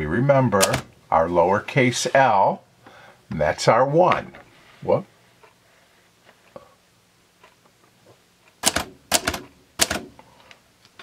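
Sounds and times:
typewriter keystrokes: 0:00.6 - 0:00.9, 0:08.6 - 0:10.1.

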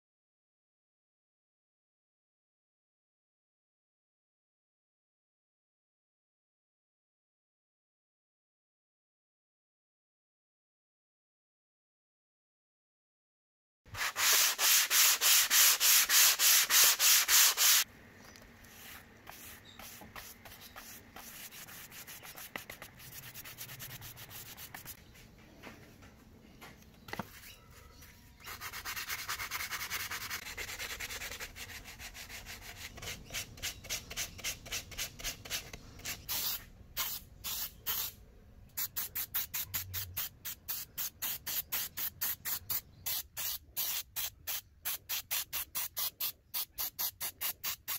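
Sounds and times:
sandpaper rubbing: 0:13.9 - 0:17.8, 0:18.7 - 0:25.0, 0:28.4 - 0:38.1, 0:38.8 - 0:47.9
sanding block rubbing wood: 0:14.0 - 0:17.8, 0:18.8 - 0:25.0, 0:28.5 - 0:36.3.

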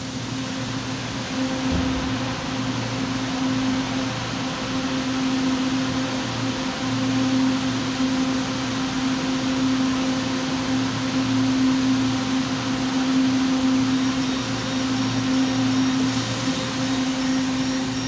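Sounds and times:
train machine hum: 0:00.0 - 0:18.0
high hiss: 0:16.0 - 0:18.0.

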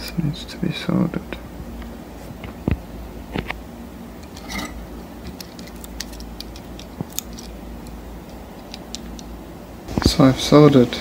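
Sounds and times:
low steady hum: 0:00.0 - 0:11.0
small parts clicking: 0:05.2 - 0:09.3.

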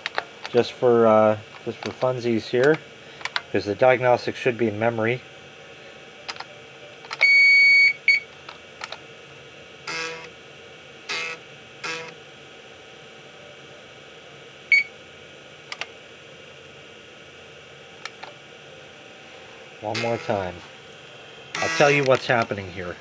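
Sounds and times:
floppy drive grinding: 0:00.0 - 0:04.0, 0:19.7 - 0:23.0
computer speaker beeping: 0:19.8 - 0:20.5.

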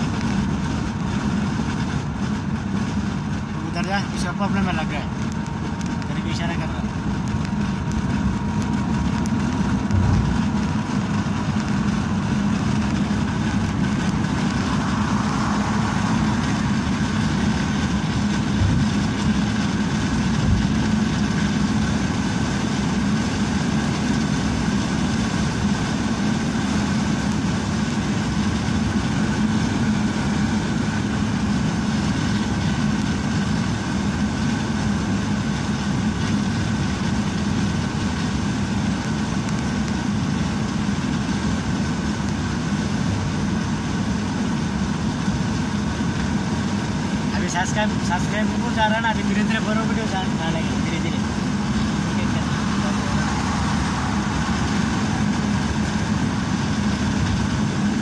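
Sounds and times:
car cruising on highway: 0:00.0 - 0:58.0.

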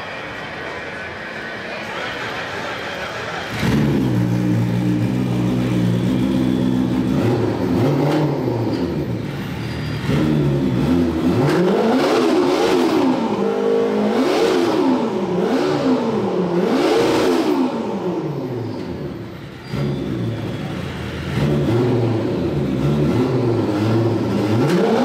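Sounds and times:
snowmobile engine revving: 0:03.5 - 0:08.7, 0:21.3 - 0:25.0.

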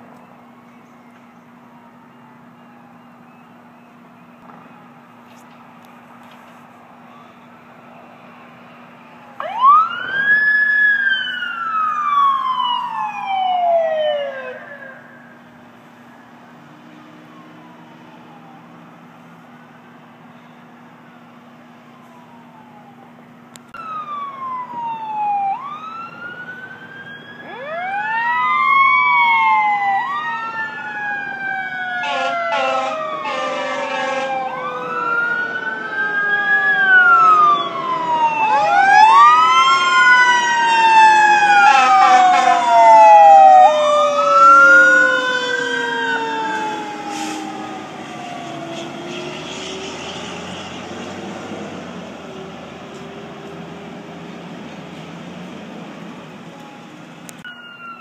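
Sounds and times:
emergency sirens wailing: 0:00.0 - 0:58.0
short siren blasts: 0:23.8 - 0:50.8.

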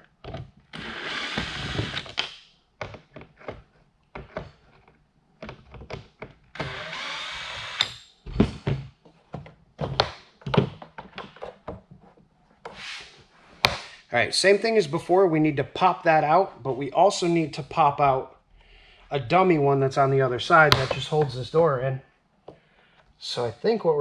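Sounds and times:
cordless drill running: 0:00.8 - 0:02.1, 0:06.6 - 0:07.9
plastic knocks and clicks: 0:02.2 - 0:06.4, 0:08.3 - 0:11.9.

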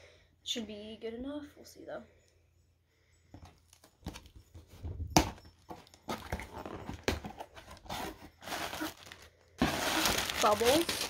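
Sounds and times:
packing tape and cardboard tearing: 0:06.2 - 0:11.0.

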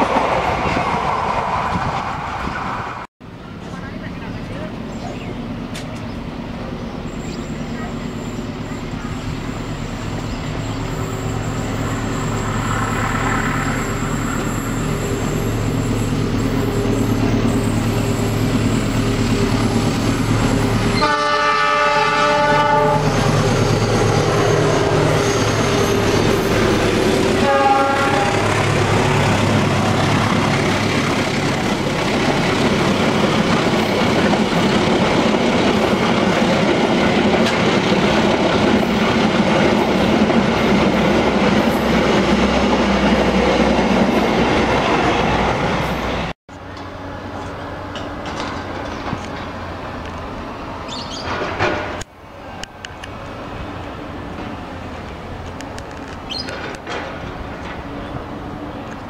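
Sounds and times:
train coaches rumbling and clacking: 0:00.0 - 0:59.0
locomotive engine running: 0:03.2 - 0:50.8
train air horn: 0:20.9 - 0:23.3, 0:27.2 - 0:28.7.

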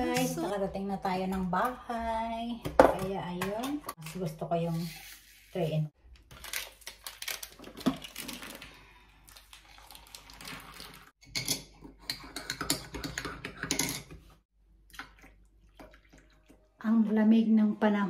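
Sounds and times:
water pouring into mug: 0:14.9 - 0:16.7.

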